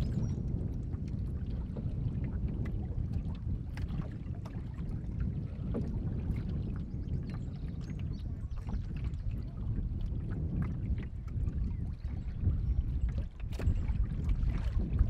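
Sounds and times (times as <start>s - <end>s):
water washing along hull: 0.0s - 15.0s
small splashes and knocks: 13.1s - 15.0s.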